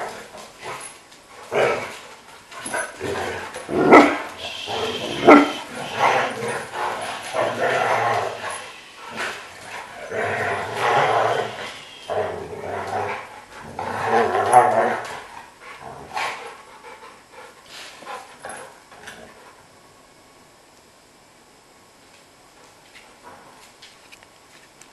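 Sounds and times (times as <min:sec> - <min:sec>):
dogs growling and barking: 0:00.0 - 0:16.7.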